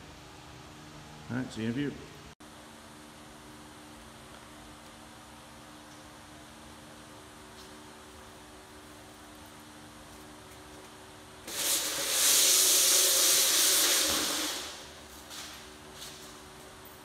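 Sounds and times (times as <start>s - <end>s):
loud hiss: 11.4s - 15.0s.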